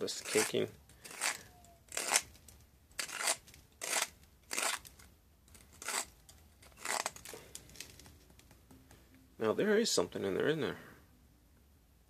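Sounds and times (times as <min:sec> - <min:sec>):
pipe reamer scraping pipe bowl: 0:00.0 - 0:02.2, 0:03.0 - 0:04.9, 0:05.5 - 0:07.3.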